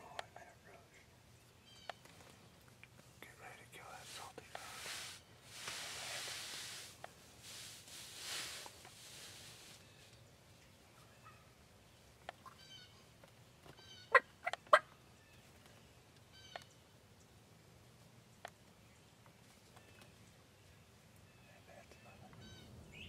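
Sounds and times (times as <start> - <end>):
turkeys gobbling: 14.1 - 14.9.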